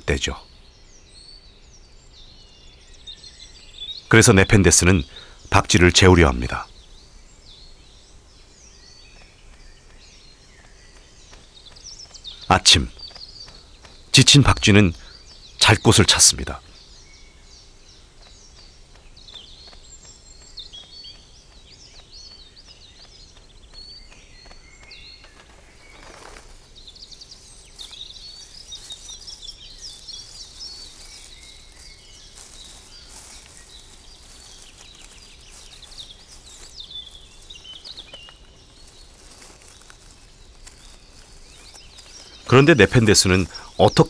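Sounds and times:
birds chirping and calling: 0.0 - 44.0
faint insect buzz: 16.6 - 42.5.

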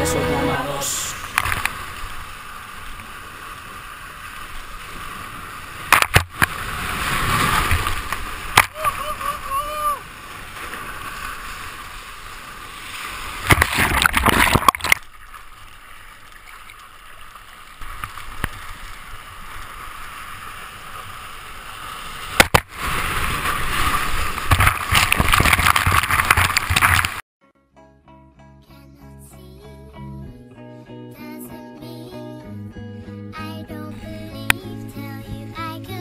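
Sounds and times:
loud rush of water: 0.0 - 15.0
seawater sloshing and splashing: 1.3 - 8.7, 10.0 - 27.2.

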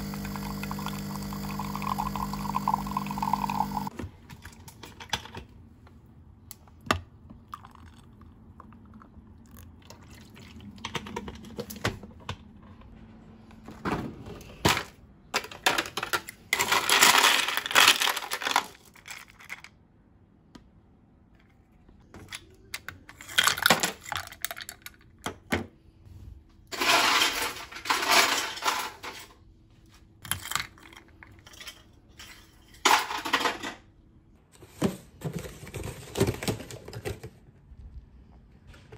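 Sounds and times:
ice cubes rattling and clinking: 0.1 - 3.9, 15.4 - 19.7, 23.1 - 25.1, 26.8 - 29.2, 30.2 - 33.6.

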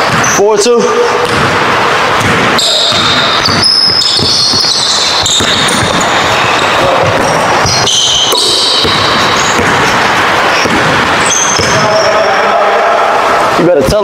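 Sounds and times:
sneakers squeaking on hardwood: 0.0 - 0.4, 2.2 - 12.1
basketball bouncing: 0.0 - 12.0.

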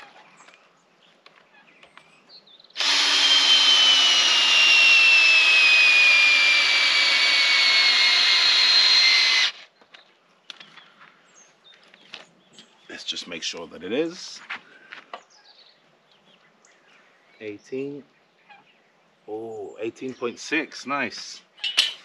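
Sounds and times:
cordless drill drilling into wood: 2.8 - 9.7.

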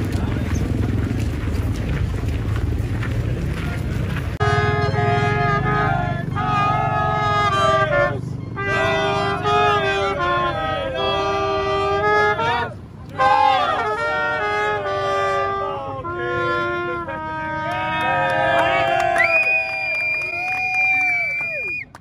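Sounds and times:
people talking: 0.0 - 2.0, 2.9 - 19.2
trumpet playing a tune: 4.4 - 18.9.

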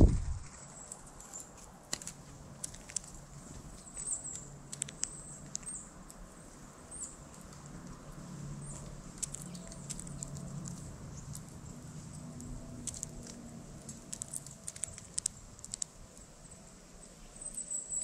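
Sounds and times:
bird pecking seed in feeder: 1.9 - 6.2, 7.2 - 16.3.

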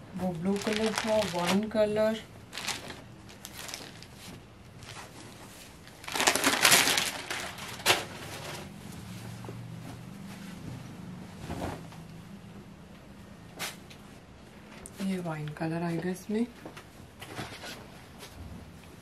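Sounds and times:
fabric rustling: 0.2 - 12.1.

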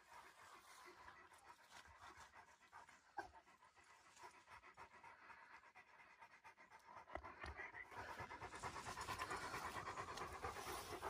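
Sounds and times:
dog panting: 0.0 - 11.0.

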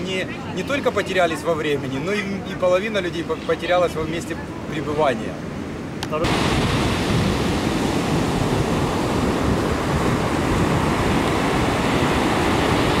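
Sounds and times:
small waves on sandy beach: 0.0 - 13.0.

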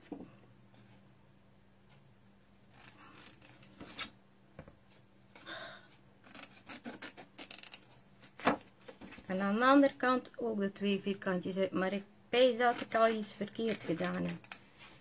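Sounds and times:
scissors snipping cardstock: 12.6 - 14.7.

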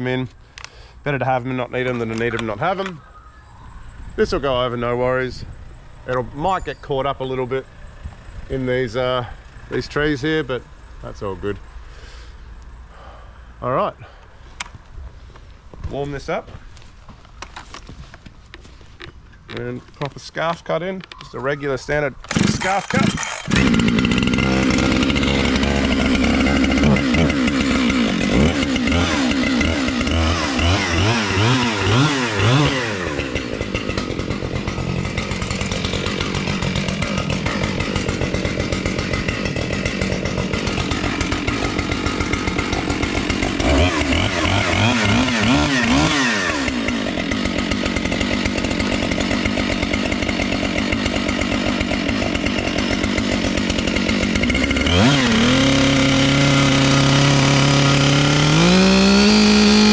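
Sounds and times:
chainsaw engine revving: 22.2 - 59.9.

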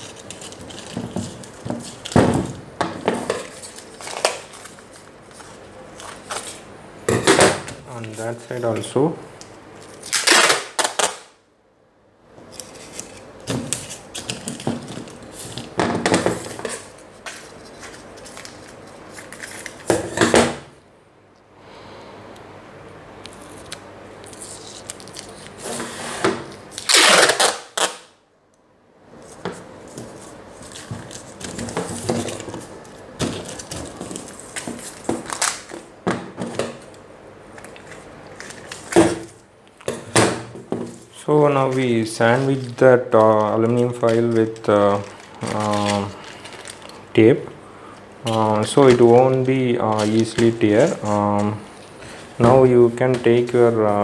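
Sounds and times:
foil crinkling: 0.0 - 2.2, 29.9 - 35.8, 41.6 - 47.0, 48.2 - 51.6
packing tape pulled off roll: 0.0 - 2.2, 9.8 - 11.3, 26.5 - 28.2, 30.6 - 35.9, 41.6 - 47.0.

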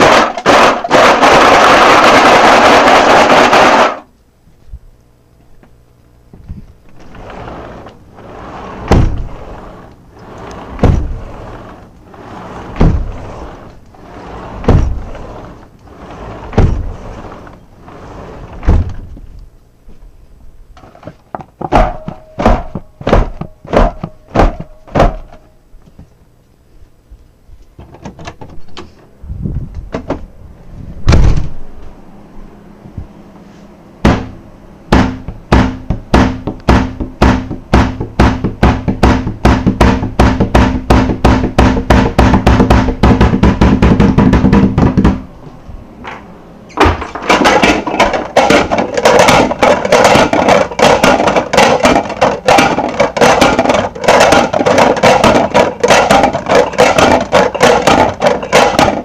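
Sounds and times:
low steady hum: 0.0 - 59.0
knocking and thudding: 6.3 - 19.3, 20.9 - 26.1, 31.0 - 31.6, 34.0 - 45.4, 46.0 - 59.0
rattling clatter: 7.0 - 19.1, 46.0 - 59.0.

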